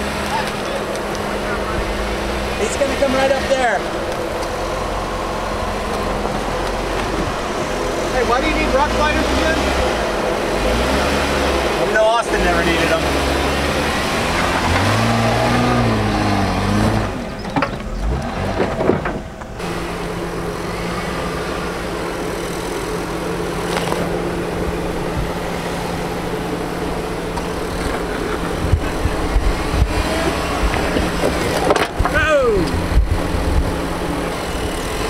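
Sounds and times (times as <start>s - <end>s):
vehicle engine droning: 0.0s - 35.0s.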